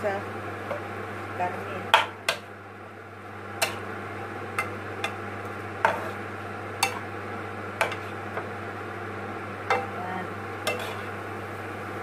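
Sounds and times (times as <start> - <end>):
spatula knocking on frying pan: 1.9 - 2.4.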